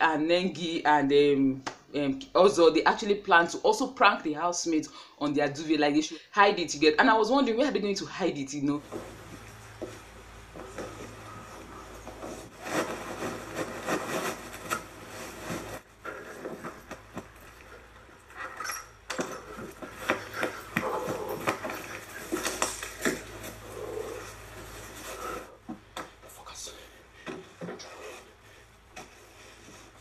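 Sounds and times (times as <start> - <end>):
fabric rustling and swishing: 8.8 - 18.3, 19.5 - 25.6.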